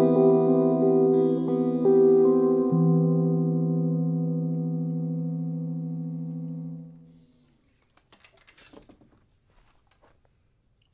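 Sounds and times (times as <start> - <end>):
electric guitar chord ringing: 0.0 - 7.2.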